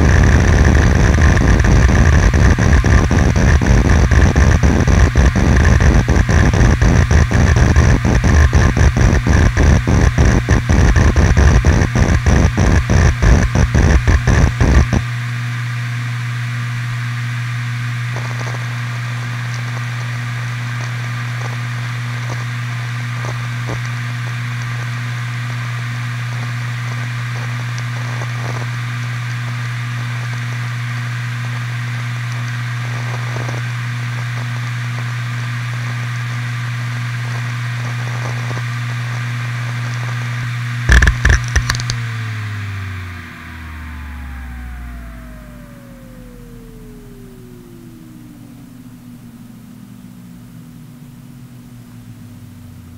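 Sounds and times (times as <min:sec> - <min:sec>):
loud hard drive clicks: 0:00.0 - 0:15.1, 0:40.9 - 0:42.0
hard drive humming: 0:00.0 - 0:52.9
faint hard drive seek clicks: 0:40.9 - 0:42.0.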